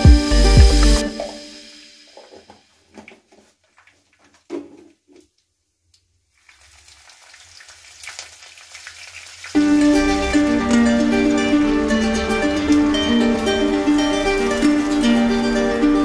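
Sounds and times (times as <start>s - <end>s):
strummed ukulele music: 0.0s - 2.6s, 9.6s - 16.0s
seeds sizzling in hot oil: 6.3s - 10.6s, 12.9s - 16.0s.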